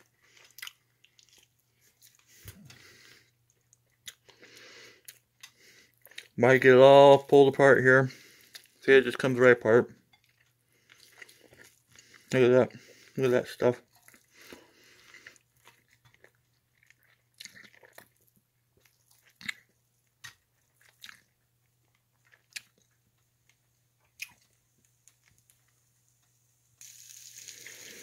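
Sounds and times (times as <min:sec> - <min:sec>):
steady hiss: 0:26.8 - 0:28.0.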